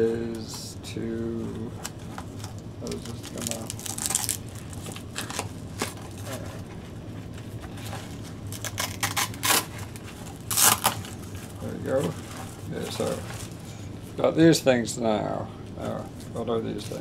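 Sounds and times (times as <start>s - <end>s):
plastic packaging crinkling: 2.4s - 6.4s, 8.5s - 13.6s.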